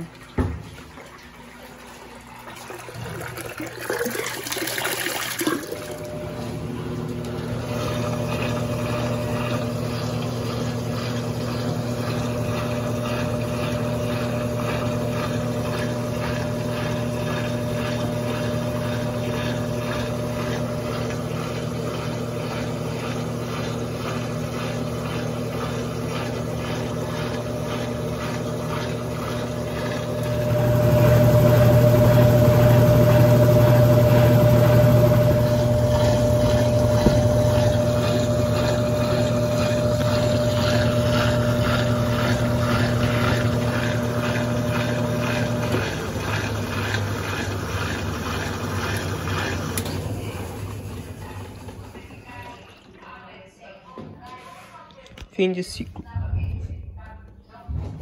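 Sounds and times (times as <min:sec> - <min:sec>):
water splashing into tub: 0:00.0 - 0:13.7
washing machine spin hum: 0:00.0 - 0:58.0.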